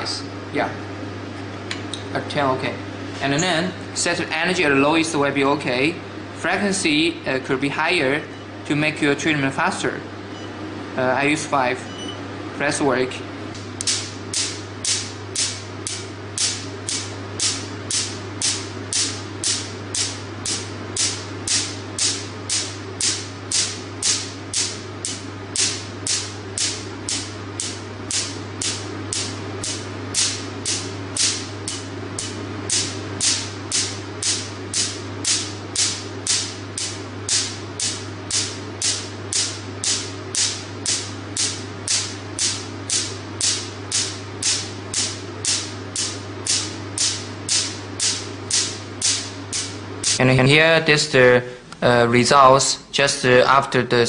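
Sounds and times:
steady low hum: 0.0 - 54.0
laser pulses snapping: 13.5 - 50.2.

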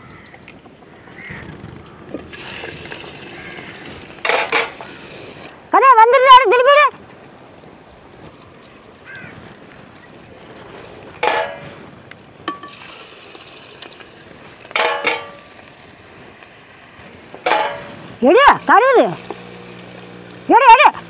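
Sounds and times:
dough sizzling in oil: 2.2 - 5.5, 12.4 - 18.0, 18.7 - 20.5
metal clink: 14.8 - 15.4.

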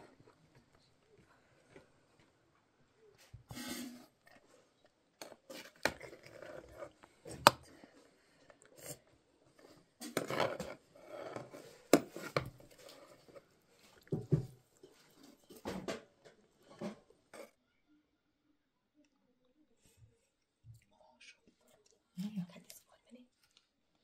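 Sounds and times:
metal skimmer scraping a pot: 3.5 - 4.1.

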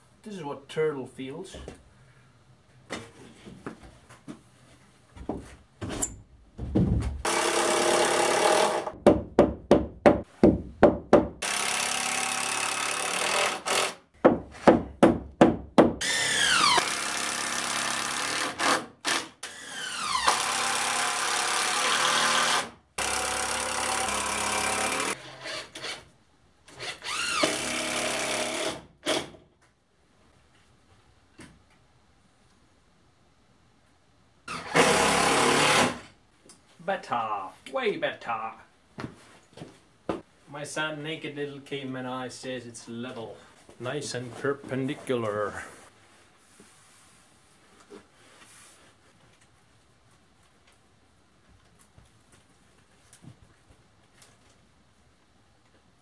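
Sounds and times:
power drill running: 7.2 - 8.9, 11.4 - 14.0, 16.0 - 26.0, 34.6 - 36.0.

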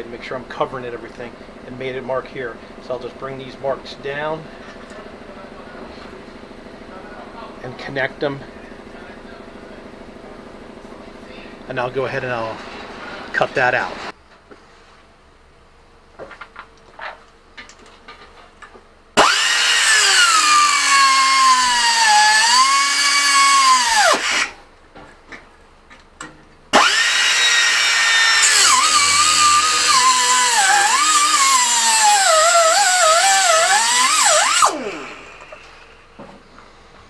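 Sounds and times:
angle grinder cutting metal: 19.2 - 24.6, 26.8 - 36.0.

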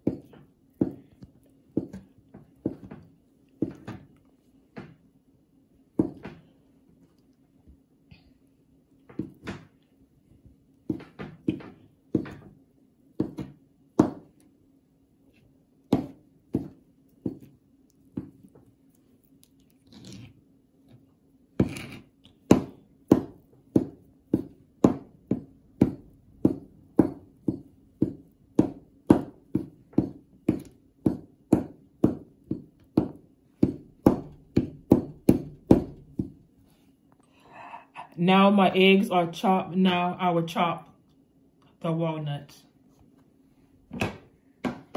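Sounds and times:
knife chopping on plastic board: 0.0 - 4.1, 10.8 - 12.6, 13.2 - 14.4, 15.8 - 18.6, 21.6 - 36.4.

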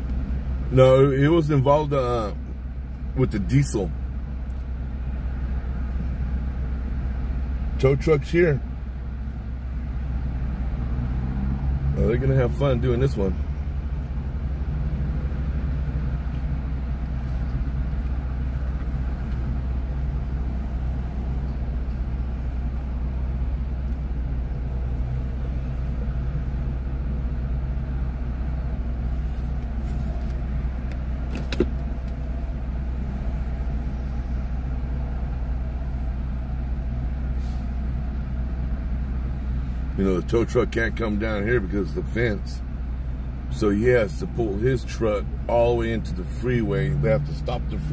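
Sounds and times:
freeway traffic rumble: 0.0 - 47.9.

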